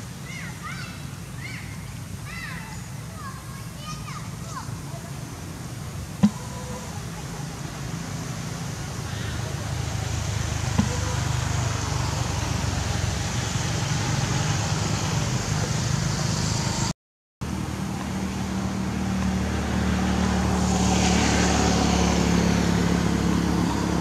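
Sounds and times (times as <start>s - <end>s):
vehicle engine running: 5.1s - 24.0s.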